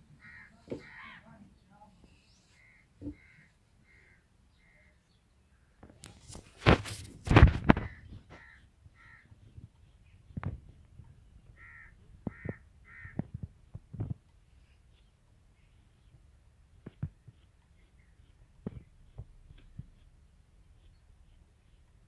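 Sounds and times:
crow cawing: 0:00.2 - 0:01.2, 0:02.6 - 0:04.8, 0:07.9 - 0:09.3, 0:11.6 - 0:13.2
knocks and scrapes: 0:05.8 - 0:08.5.

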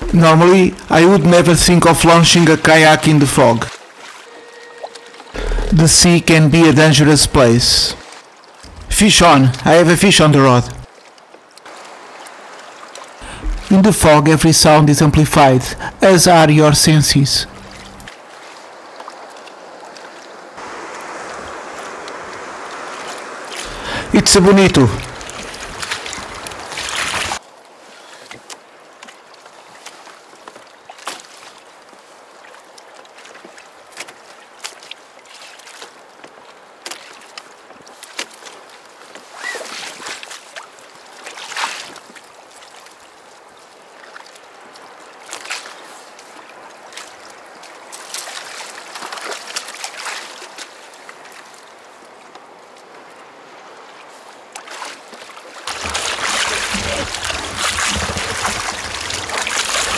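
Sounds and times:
water lapping against kayak hull: 0:03.4 - 0:06.1, 0:10.7 - 0:14.0, 0:17.5 - 0:59.9
fish splashing at surface: 0:25.0 - 0:27.4, 0:55.6 - 0:59.9.

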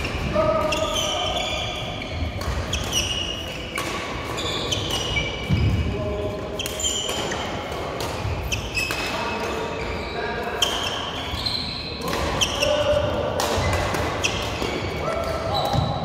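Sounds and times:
shoes squeaking on court: 0:00.0 - 0:16.0
rackets striking shuttlecocks: 0:02.3 - 0:05.8, 0:12.0 - 0:16.0.

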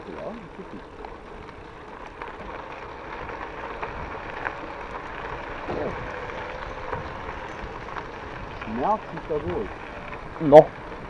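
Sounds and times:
bicycle tyres on gravel: 0:00.0 - 0:11.0
bike rattling: 0:00.0 - 0:11.0
wind on microphone: 0:05.5 - 0:11.0.

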